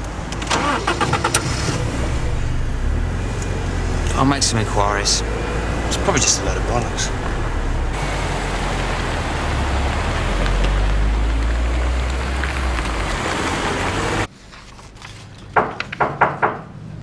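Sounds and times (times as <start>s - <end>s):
car engine rumbling: 0.0s - 14.3s
road noise: 0.0s - 17.0s
paper rustling: 14.3s - 15.6s.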